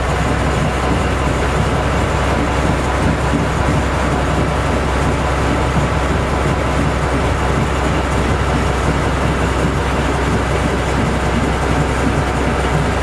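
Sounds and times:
diesel locomotive engine running: 0.0 - 13.0.

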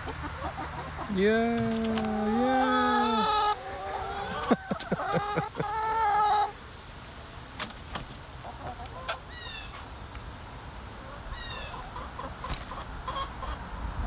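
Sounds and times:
hens clucking softly: 0.0 - 6.6, 7.6 - 10.0, 10.9 - 13.7
high falling hen calls: 0.0 - 6.6, 11.0 - 13.7.

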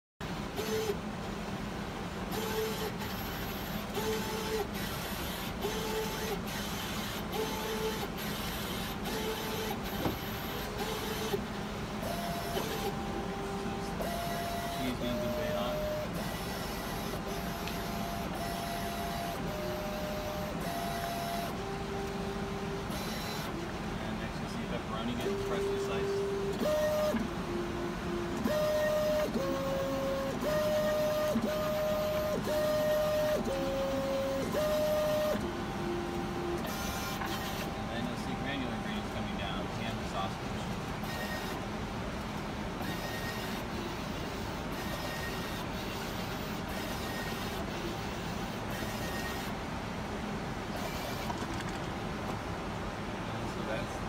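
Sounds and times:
steady machine hum: 0.2 - 54.0
machine motors whining: 0.4 - 52.6.

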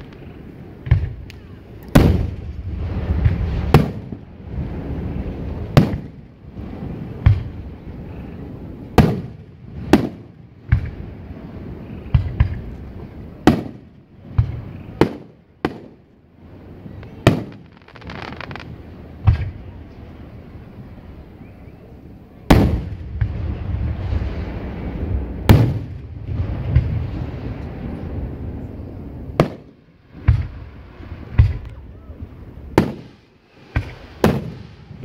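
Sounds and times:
fireworks booming: 0.0 - 21.4, 22.4 - 35.0.

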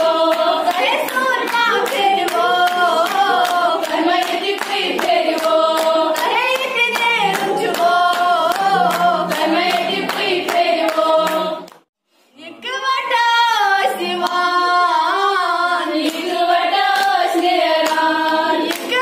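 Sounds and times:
girls singing unaccompanied: 0.0 - 11.8, 12.4 - 19.0
hand claps: 0.0 - 11.9, 16.0 - 19.0.

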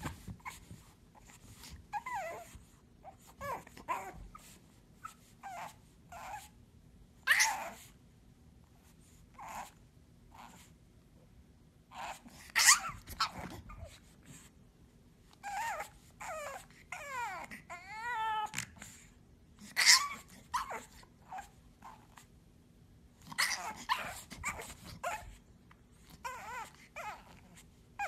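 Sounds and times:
puppy whining: 0.0 - 6.6, 7.2 - 8.0, 9.0 - 10.8, 11.9 - 14.5, 15.3 - 22.4, 23.2 - 28.0
puppy yipping: 7.3 - 7.9, 11.9 - 14.0, 15.4 - 18.8, 19.6 - 22.3, 23.3 - 25.4, 26.2 - 27.6.

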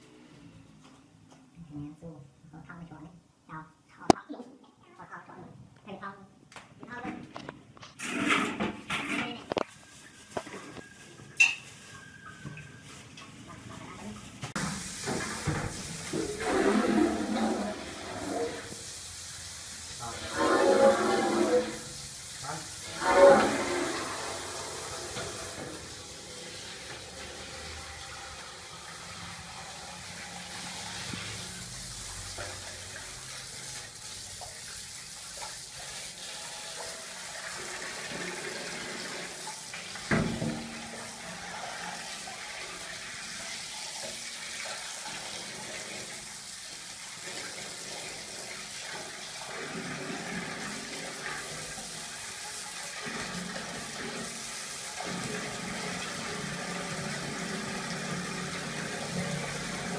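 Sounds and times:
water splashing in a pot: 8.0 - 59.9
water running from a hose: 13.8 - 59.9.

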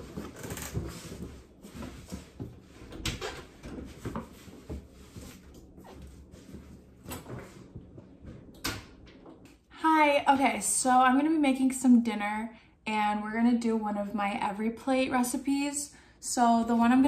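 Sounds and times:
clothes and laundry bag rustling: 0.0 - 8.0.

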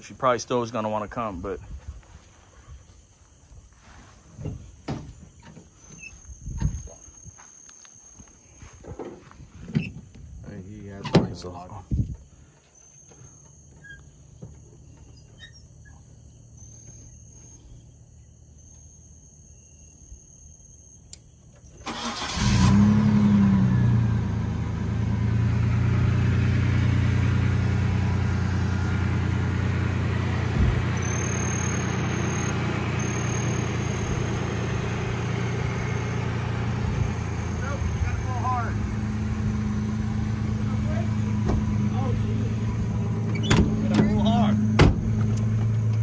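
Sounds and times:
car engine starting and idling: 21.8 - 46.0.

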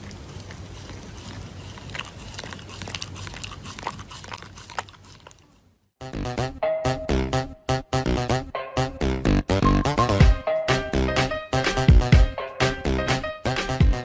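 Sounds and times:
dog chewing paper tissue: 0.0 - 5.6.

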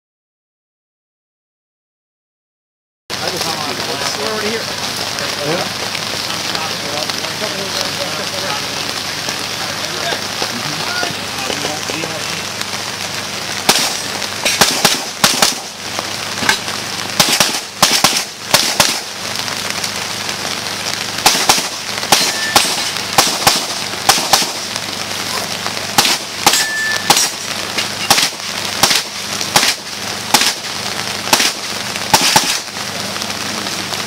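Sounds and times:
steady rain hissing: 3.1 - 34.0
rapid pistol shots: 13.6 - 15.8, 17.2 - 19.2, 21.2 - 24.7, 25.9 - 32.8.

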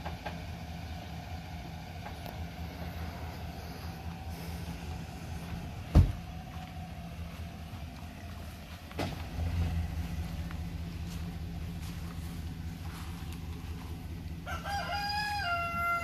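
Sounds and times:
truck engine idling: 0.0 - 16.0
loud thump: 5.8 - 6.3.

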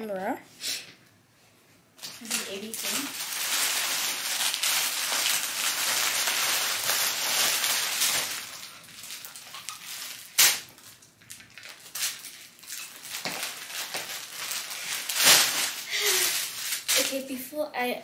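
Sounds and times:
plastic packages crinkling: 2.0 - 17.5
sharp plastic crackle: 2.0 - 17.5.

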